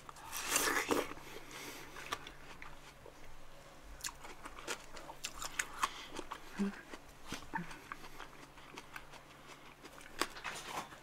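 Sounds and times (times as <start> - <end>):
juicy crunch of biting watermelon: 0.1 - 1.3.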